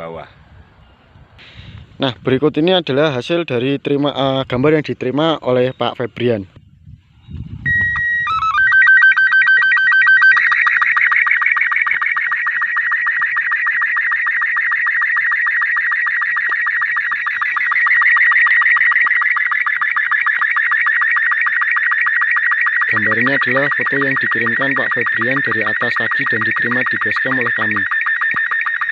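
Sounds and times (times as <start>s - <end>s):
ticking warble signal: 7.6s - 28.9s
steady start-up tones: 7.7s - 28.9s.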